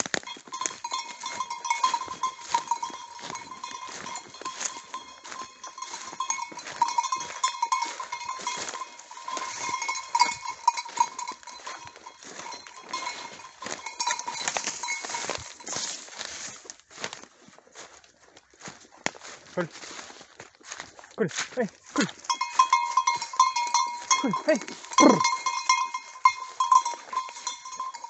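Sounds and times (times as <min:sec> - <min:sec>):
footsteps in dry leaves: 0:00.0 - 0:27.7
dog bell ringing: 0:00.2 - 0:16.0, 0:21.9 - 0:28.0.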